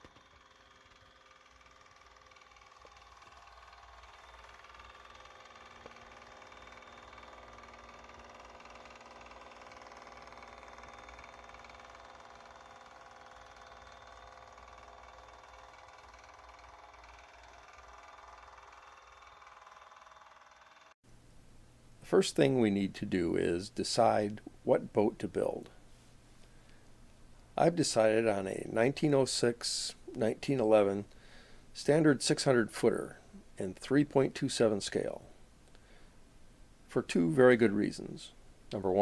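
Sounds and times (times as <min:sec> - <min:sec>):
model boat motor humming: 0:00.0 - 0:21.0.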